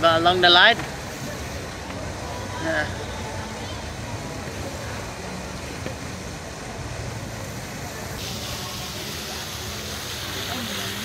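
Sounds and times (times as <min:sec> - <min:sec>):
faint voices: 0:00.0 - 0:11.0
low rumble and hiss: 0:00.0 - 0:11.0
bright hiss: 0:06.8 - 0:11.0.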